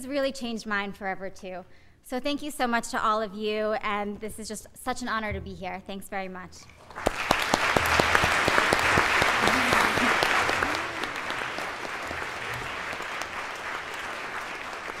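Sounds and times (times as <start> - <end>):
audience applauding: 6.8 - 15.0.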